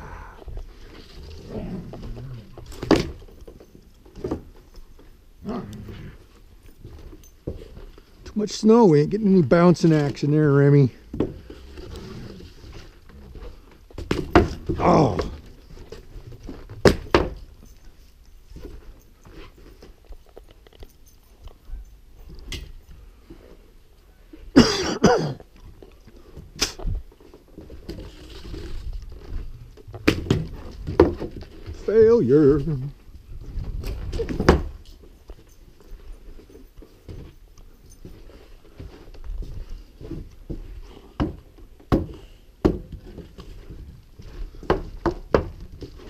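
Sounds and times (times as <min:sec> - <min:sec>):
man coughing and clearing throat: 0:24.5 - 0:25.4
footsteps on wooden deck: 0:24.6 - 0:46.0.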